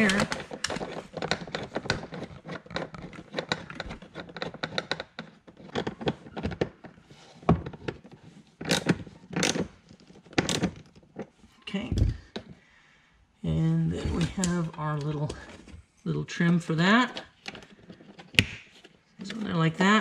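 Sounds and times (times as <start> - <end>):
sharp clicks and knocks: 0.0 - 12.6
rubbing and handling noises: 0.0 - 12.8, 13.5 - 20.0.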